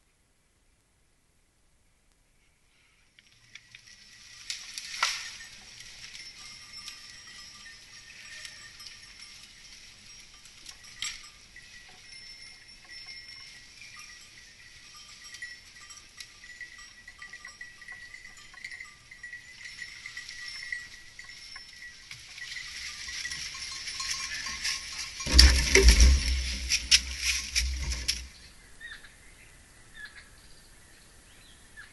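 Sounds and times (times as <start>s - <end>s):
goats walking over rock: 3.1s - 28.5s
bells clinking: 3.3s - 28.5s.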